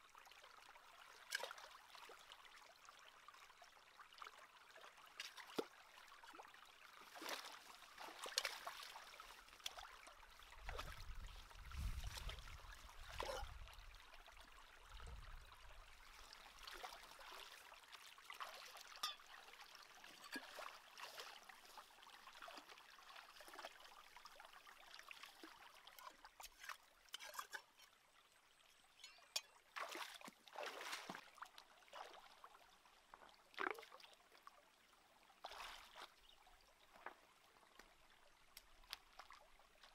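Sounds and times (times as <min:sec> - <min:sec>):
stream trickling over rocks: 0:00.0 - 0:39.9
small splashes in water: 0:01.1 - 0:02.4, 0:04.7 - 0:28.0, 0:29.0 - 0:32.6, 0:33.2 - 0:34.4, 0:35.4 - 0:37.2.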